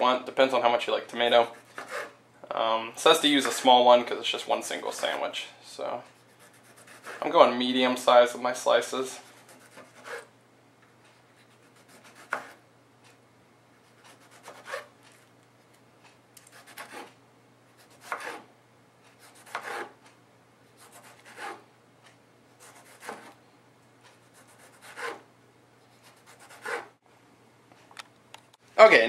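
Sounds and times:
knife slicing tomato: 0:06.1 - 0:07.2, 0:09.2 - 0:10.3, 0:11.4 - 0:12.6, 0:13.8 - 0:14.9, 0:16.4 - 0:17.2, 0:17.8 - 0:18.5, 0:19.1 - 0:20.0, 0:20.8 - 0:21.6, 0:22.6 - 0:23.4, 0:24.1 - 0:25.3, 0:26.0 - 0:26.9.

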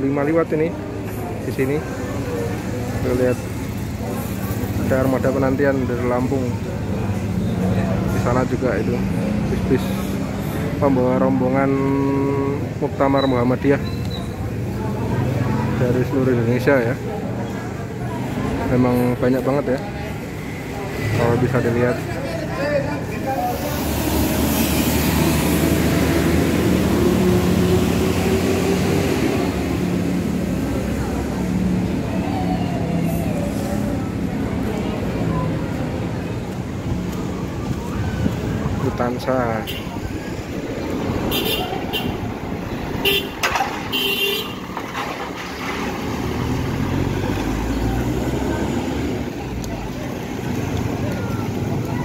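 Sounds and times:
bus diesel engine passing: 0:14.3 - 0:52.0
vehicle horn tooting: 0:41.3 - 0:42.2, 0:43.0 - 0:44.6.

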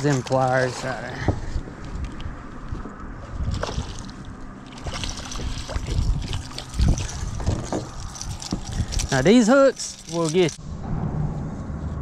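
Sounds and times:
water splashing and trickling: 0:03.3 - 0:10.6.

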